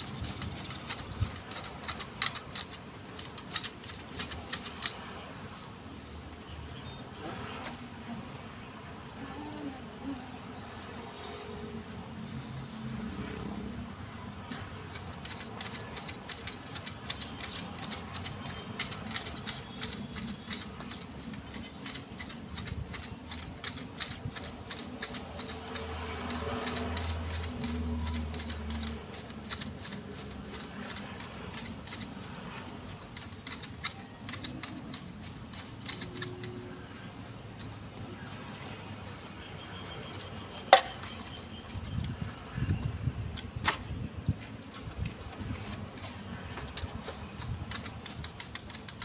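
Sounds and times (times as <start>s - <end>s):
hand shears snipping twigs: 0.0s - 5.6s, 14.6s - 38.6s, 43.3s - 44.1s, 44.7s - 49.0s.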